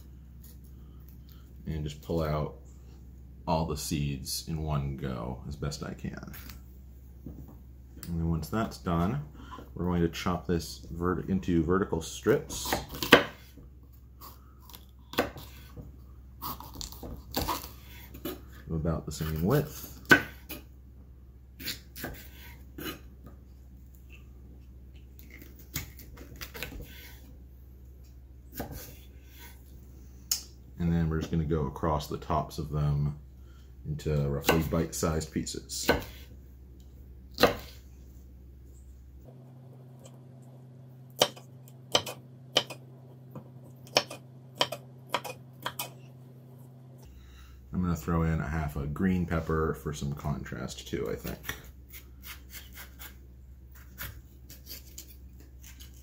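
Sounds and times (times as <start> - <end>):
knife chopping on wooden board: 12.6 - 13.4, 20.0 - 20.6, 21.6 - 23.0, 35.8 - 36.2, 37.4 - 37.8, 41.2 - 42.8, 43.4 - 45.9.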